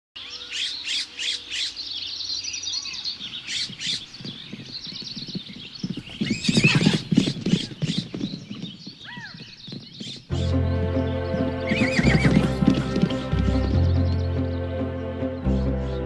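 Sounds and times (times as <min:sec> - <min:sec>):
birds chirping: 0:00.2 - 0:16.0
hooves clopping: 0:03.0 - 0:14.6
horse whinnying: 0:05.2 - 0:09.4, 0:11.6 - 0:13.7.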